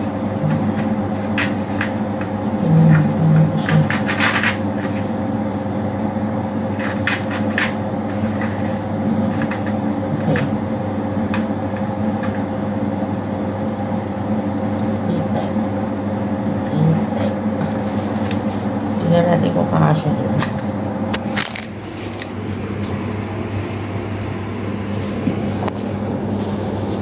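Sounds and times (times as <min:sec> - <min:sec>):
electric motor hum: 0:00.0 - 0:27.0.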